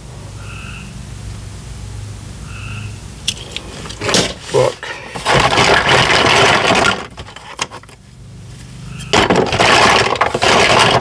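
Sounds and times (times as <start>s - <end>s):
plastic toys rattling in a box: 5.2s - 8.0s, 9.1s - 11.0s.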